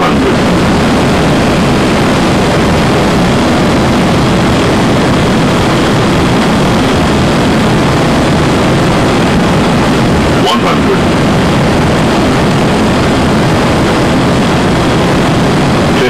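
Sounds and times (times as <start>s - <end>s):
airflow and engine noise in cockpit: 0.0s - 16.0s.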